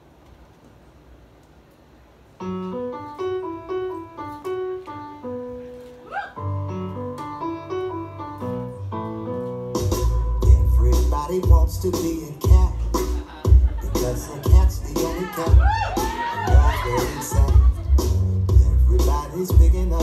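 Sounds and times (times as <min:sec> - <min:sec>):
faint room noise: 0:00.0 - 0:11.4
piano music: 0:02.4 - 0:20.0.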